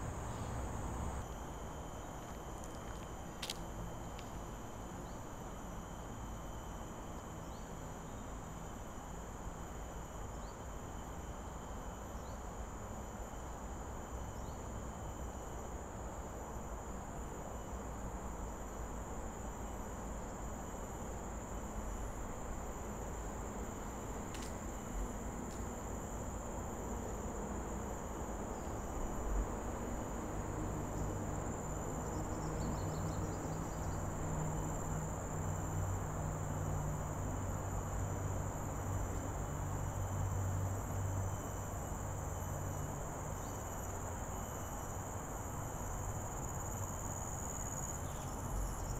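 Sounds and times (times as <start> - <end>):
low hum: 0.0 - 1.3
insects droning: 0.0 - 48.9.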